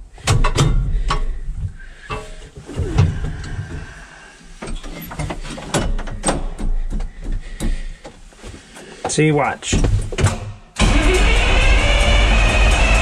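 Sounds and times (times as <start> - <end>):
gear-shift levers clunking: 4.6 - 8.2.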